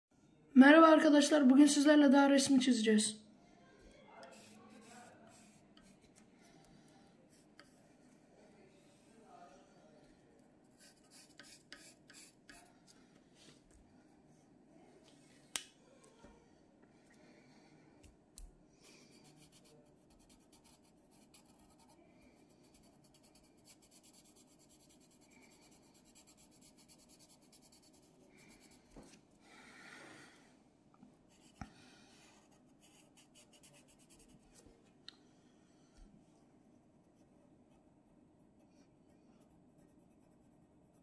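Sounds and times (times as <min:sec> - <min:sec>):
pencil scratching on paper: 0:04.2 - 0:06.3, 0:07.3 - 0:08.2, 0:10.7 - 0:13.0, 0:18.8 - 0:29.1, 0:32.2 - 0:34.6, 0:38.8 - 0:41.0.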